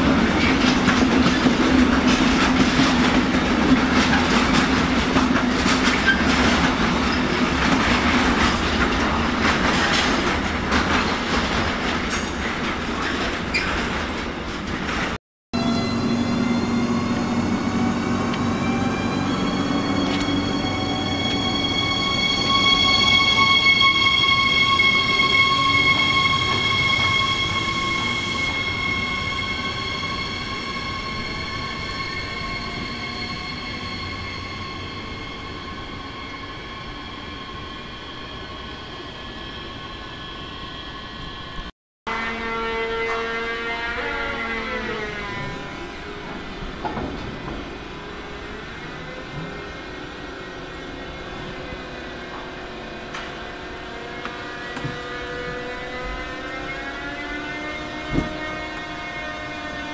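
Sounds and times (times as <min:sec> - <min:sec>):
train rumble: 0:00.0 - 0:37.4, 0:44.8 - 0:59.9
electric train whine: 0:15.6 - 0:59.9.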